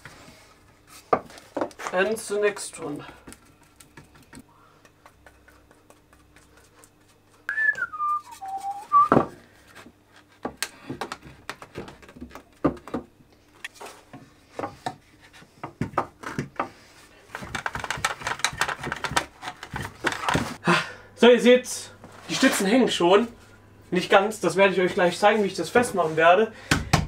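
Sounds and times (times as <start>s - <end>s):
person whistling: 7.5s - 9.2s.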